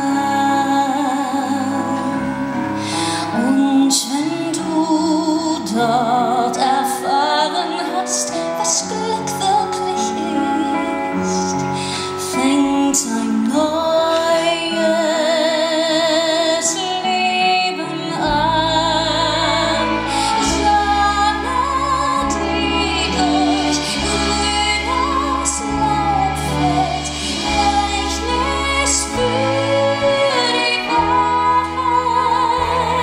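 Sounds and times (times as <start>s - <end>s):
keyboard and band accompaniment: 0.0s - 33.0s
woman singing a slow ballad: 0.0s - 33.0s
deep bass line: 18.3s - 33.0s.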